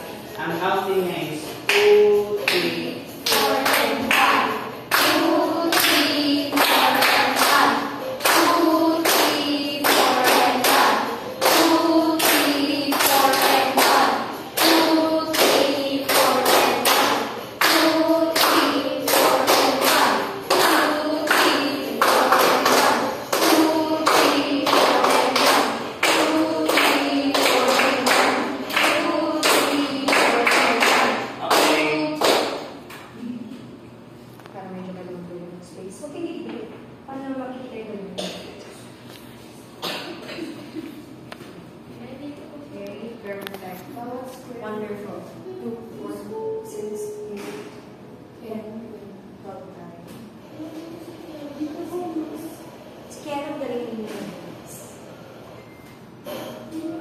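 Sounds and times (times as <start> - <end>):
hand-clapping steady beat: 1.4 - 33.2
person singing: 17.6 - 30.8.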